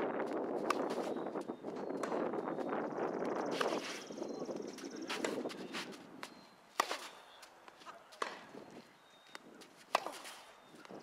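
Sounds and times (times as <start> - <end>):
tennis ball struck by racket: 0.6 - 1.2, 5.0 - 8.6, 9.8 - 10.6.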